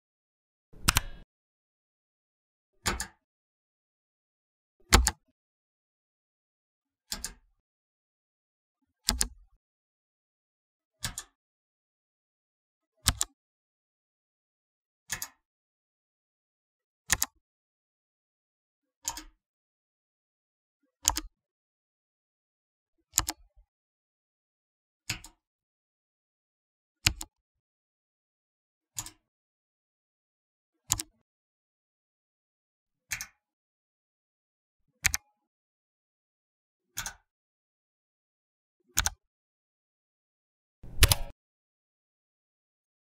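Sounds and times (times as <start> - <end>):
mechanical keyboard key clicks: 0.8 - 1.2, 4.9 - 5.2, 40.8 - 41.3.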